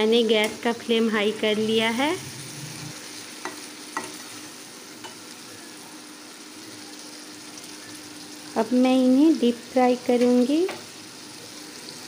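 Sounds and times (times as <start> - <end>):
vegetables sizzling in oil: 0.0 - 12.0
spatula tapping on a pan: 3.4 - 4.2.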